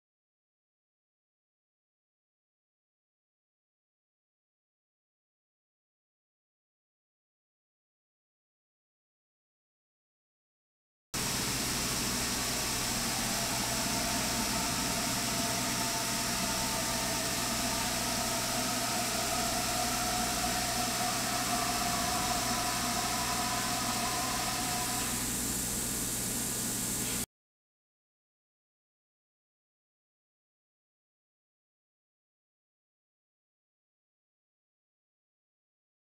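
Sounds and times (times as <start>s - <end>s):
faint wavering whine: 11.2s - 27.1s
hiss and hum of machinery: 11.2s - 27.2s.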